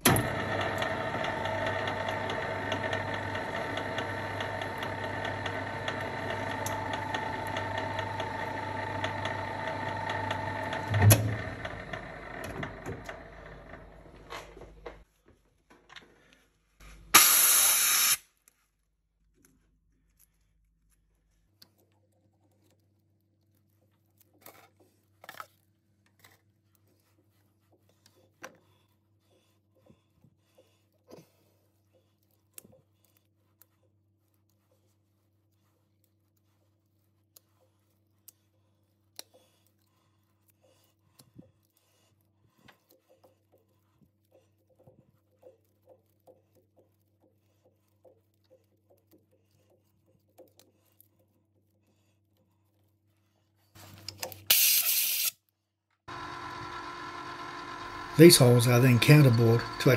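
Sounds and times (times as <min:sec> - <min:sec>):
lathe clunk: 0:00.0 - 0:14.2, 0:58.0 - 0:59.9
metal lathe whining: 0:00.0 - 0:14.2, 0:56.1 - 0:59.9
short loud hiss: 0:17.2 - 0:18.2.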